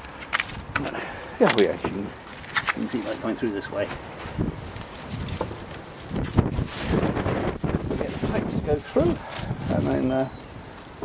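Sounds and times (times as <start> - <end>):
wind buffeting microphone: 4.2 - 11.0.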